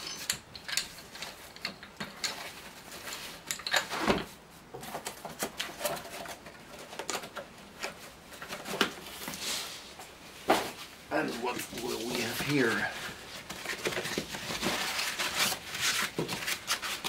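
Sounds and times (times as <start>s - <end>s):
cardboard flaps rustling: 10.4s - 17.0s.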